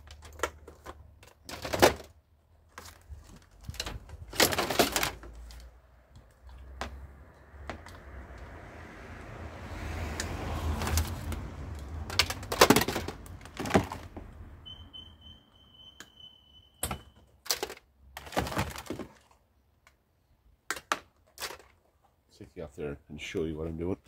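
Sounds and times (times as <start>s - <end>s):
plastic appliances clattering: 0.0s - 2.2s, 2.8s - 5.6s, 12.1s - 14.1s, 16.9s - 19.4s, 20.7s - 21.8s.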